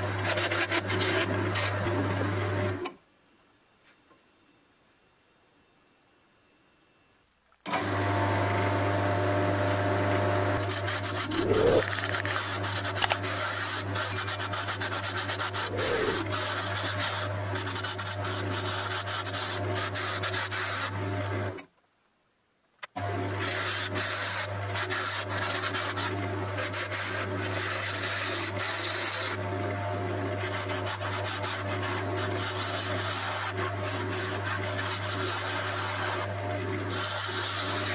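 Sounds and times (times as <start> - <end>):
turning tool scraping wood: 0.2 - 1.8, 10.6 - 21.0, 23.4 - 29.4, 30.4 - 36.3, 36.9 - 37.9
wood lathe motor humming: 10.6 - 20.9, 30.6 - 36.3.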